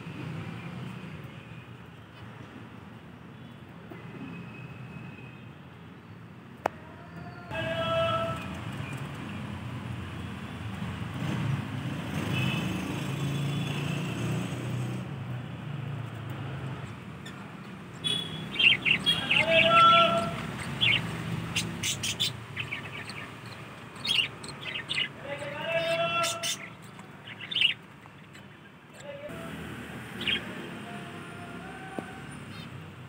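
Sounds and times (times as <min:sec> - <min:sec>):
budgerigars chirping and chattering: 0:16.8 - 0:29.1, 0:30.1 - 0:30.6.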